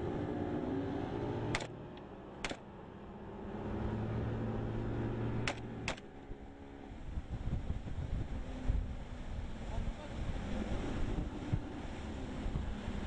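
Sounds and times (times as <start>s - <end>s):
motorboat engine running: 0.0s - 13.0s
sharp cracks: 1.5s - 1.7s, 2.4s - 2.6s, 5.4s - 6.1s.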